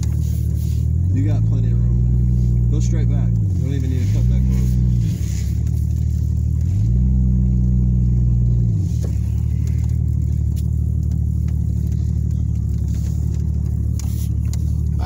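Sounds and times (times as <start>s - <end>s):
vehicle engine revving: 0.0s - 15.0s.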